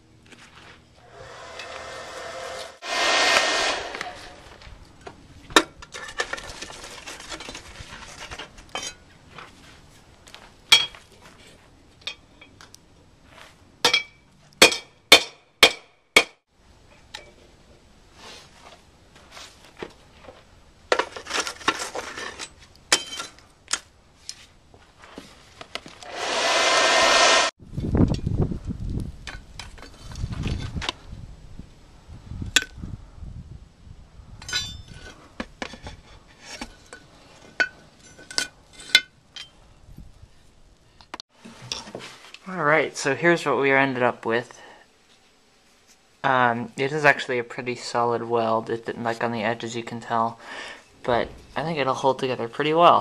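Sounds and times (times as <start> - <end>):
electric blower whirring: 1.0 - 4.6, 26.0 - 27.5
metal-on-metal strikes: 1.0 - 4.6.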